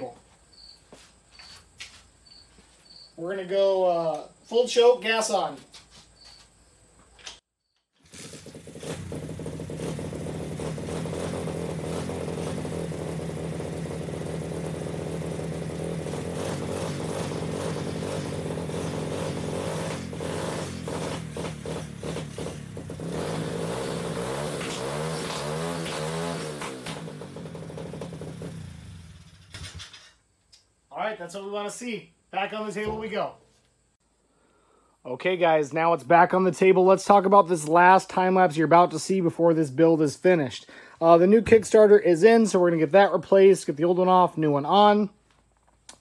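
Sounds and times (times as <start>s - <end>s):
dirt bike engine kick-started: 7.9s - 30.2s
dirt bike engine revving: 8.0s - 29.4s.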